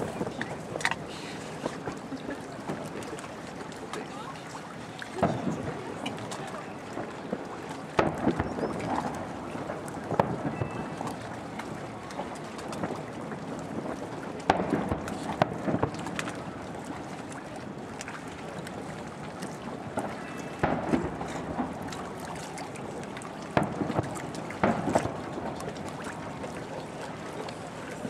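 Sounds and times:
distant firework bangs: 0:10.0 - 0:11.1, 0:20.0 - 0:21.9.

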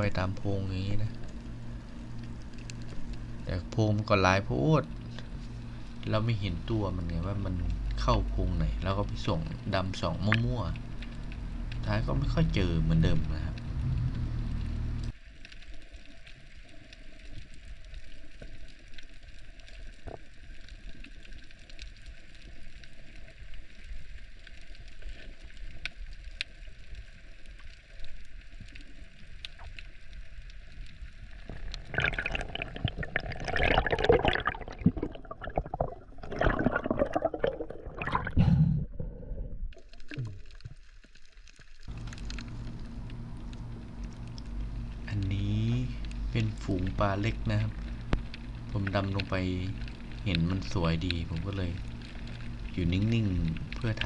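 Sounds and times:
gurgling and bubbling: 0:00.0 - 0:15.1, 0:31.4 - 0:40.7
low steady hum: 0:00.0 - 0:54.0
muffled underwater water noise: 0:00.0 - 0:54.0.

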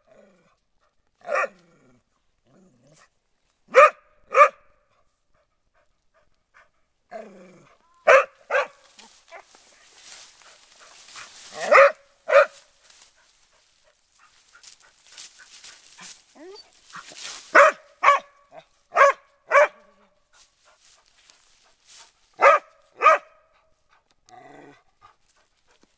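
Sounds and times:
dog barking in high yaps: 0:01.2 - 0:01.5, 0:03.7 - 0:04.7, 0:08.0 - 0:09.5, 0:11.5 - 0:12.7, 0:16.4 - 0:20.0, 0:22.4 - 0:23.4.

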